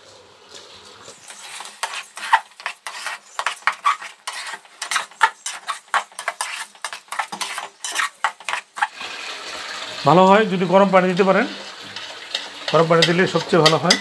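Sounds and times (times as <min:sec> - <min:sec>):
metal spatula scraping a pot: 0:01.0 - 0:09.1, 0:11.8 - 0:14.0.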